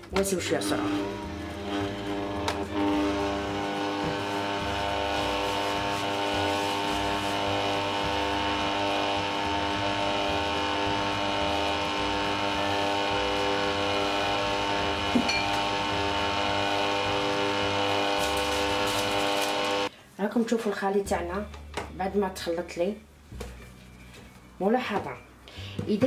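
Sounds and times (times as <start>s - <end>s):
stand mixer motor whining: 0.0s - 19.9s.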